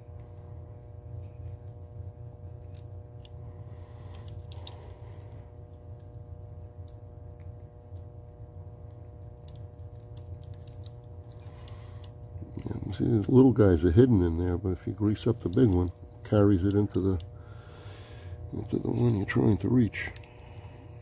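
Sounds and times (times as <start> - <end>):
steady low hum: 0.0 - 21.0
rotary dial mechanism clicks: 15.0 - 17.3.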